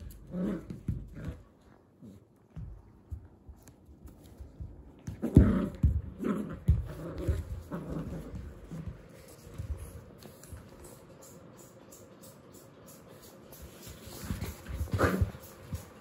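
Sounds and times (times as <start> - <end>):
thumps of toy and paws on carpet: 2.5 - 10.9, 13.6 - 16.0.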